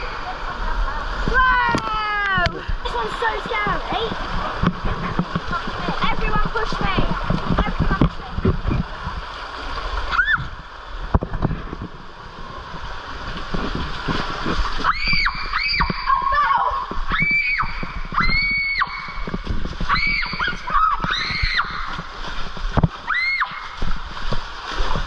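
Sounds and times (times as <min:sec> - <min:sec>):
water rushing and splashing: 0:00.0 - 0:25.0
girls screaming: 0:10.1 - 0:10.6, 0:14.8 - 0:19.2, 0:19.9 - 0:22.0, 0:23.0 - 0:23.8.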